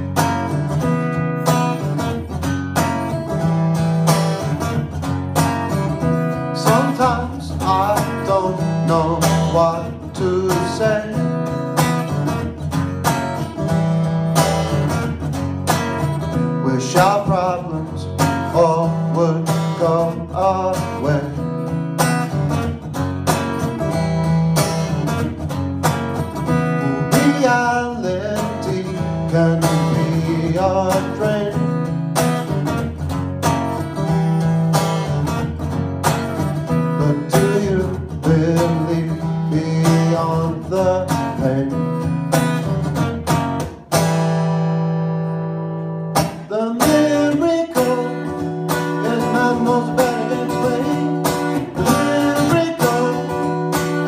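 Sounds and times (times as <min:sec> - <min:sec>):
acoustic guitar strumming: 0:00.0 - 0:54.0
man singing: 0:06.4 - 0:11.8, 0:16.5 - 0:21.6, 0:26.4 - 0:32.1, 0:36.7 - 0:42.2, 0:46.3 - 0:54.0.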